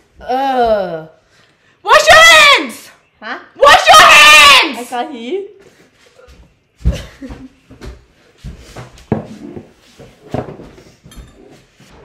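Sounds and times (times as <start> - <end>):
knocks and thuds in kitchen: 6.8 - 11.2.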